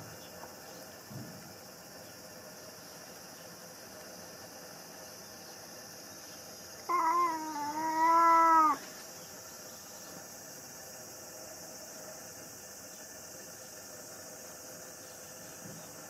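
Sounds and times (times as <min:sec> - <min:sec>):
cat meowing: 0:06.9 - 0:08.8.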